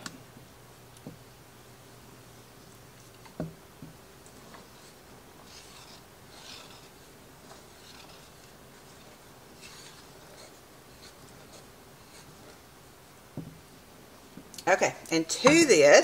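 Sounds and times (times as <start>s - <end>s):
spatula scraping pot: 4.3s - 12.7s.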